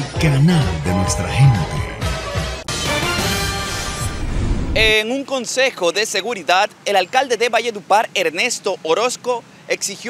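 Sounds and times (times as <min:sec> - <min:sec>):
news theme music: 0:00.0 - 0:04.4
bright sustained music sting: 0:00.8 - 0:02.9.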